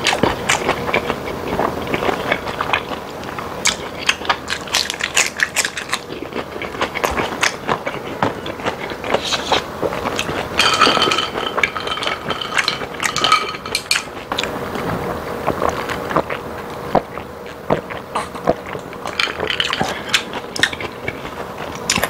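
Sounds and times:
wet chewing mouth sounds: 0:00.0 - 0:10.6, 0:12.5 - 0:22.0
ice clinking in a glass: 0:10.6 - 0:14.0.

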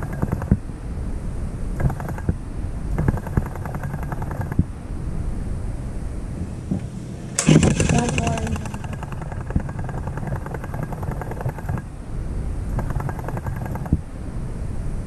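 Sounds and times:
toy train gears clicking: 0:00.0 - 0:00.5, 0:01.8 - 0:02.3, 0:03.0 - 0:04.6, 0:07.4 - 0:11.9, 0:12.7 - 0:14.0
toy train motor rumbling: 0:00.0 - 0:00.5, 0:02.9 - 0:04.6, 0:07.4 - 0:11.9, 0:12.7 - 0:14.0
clatter: 0:00.0 - 0:00.6, 0:01.8 - 0:04.6, 0:07.4 - 0:11.9, 0:12.7 - 0:14.0.

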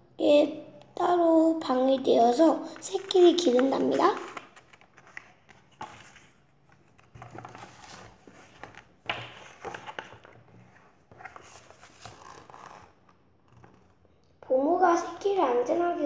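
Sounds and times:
book pages rustling: 0:02.6 - 0:14.0.

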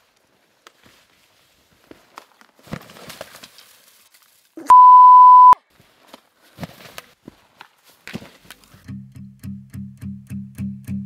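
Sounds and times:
steady bleep tone: 0:04.7 - 0:05.6.

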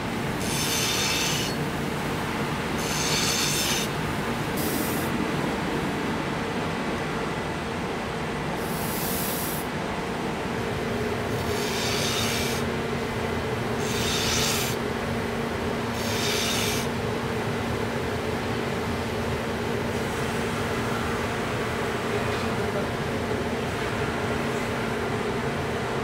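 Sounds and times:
bench grinder motor hum: 0:00.4 - 0:01.6, 0:02.8 - 0:04.0, 0:11.3 - 0:12.6, 0:13.8 - 0:14.8, 0:16.0 - 0:16.9
knife blade rubbing on grinder: 0:00.4 - 0:01.6, 0:02.8 - 0:04.0, 0:11.4 - 0:12.6, 0:13.8 - 0:14.8, 0:16.0 - 0:16.9.

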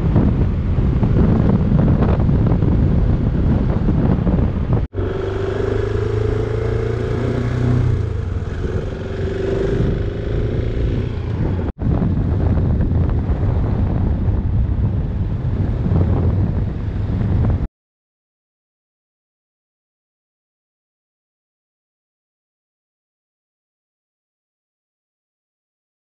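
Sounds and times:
wind noise on microphone: 0:00.0 - 0:17.7
motorcycle cruising on gravel: 0:00.4 - 0:14.2.

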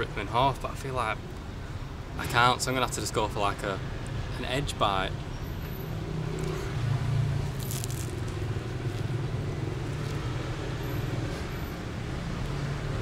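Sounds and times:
vehicle engine rumble: 0:03.8 - 0:13.0
crusty bread crunching: 0:07.4 - 0:09.1.

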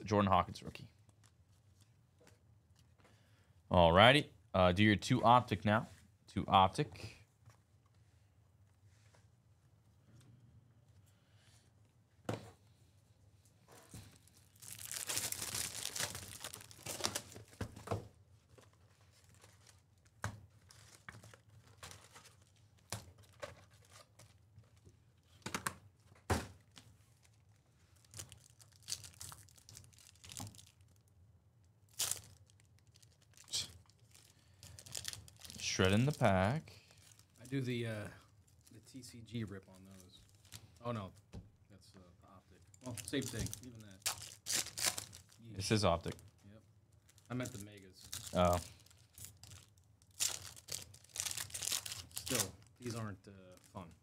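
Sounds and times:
foil packs tearing and crinkling: 0:14.4 - 0:17.4, 0:28.0 - 0:30.8, 0:31.9 - 0:36.1, 0:42.8 - 0:45.4, 0:47.2 - 0:53.0.

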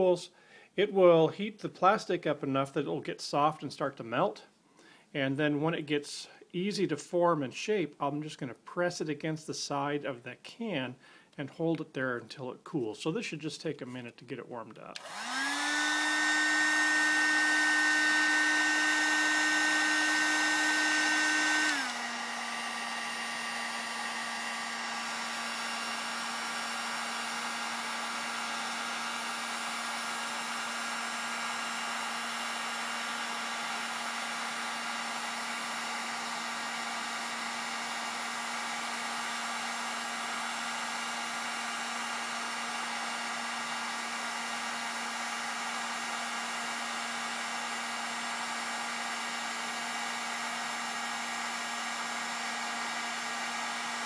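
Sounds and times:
heat gun fan whine: 0:15.0 - 0:54.0.

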